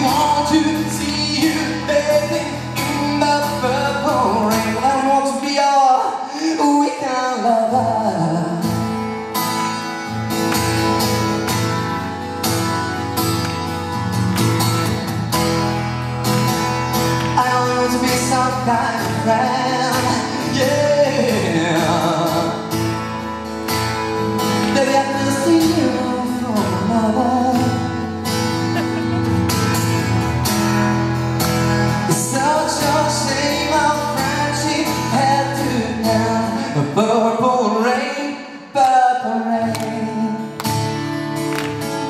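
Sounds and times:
man singing into a microphone: 0.0 - 9.0, 17.3 - 22.8, 24.4 - 29.1, 32.0 - 40.9
acoustic guitar strumming: 0.0 - 42.0.

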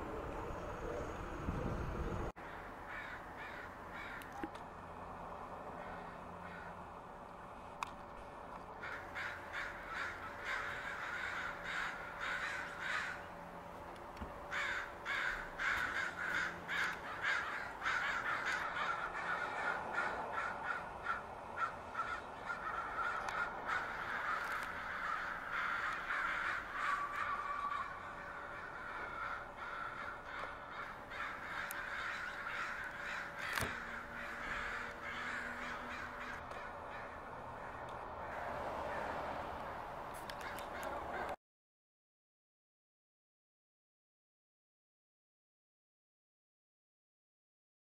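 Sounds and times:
flock of crows cawing: 2.4 - 4.6, 5.6 - 7.0, 8.8 - 13.4, 14.4 - 41.4.

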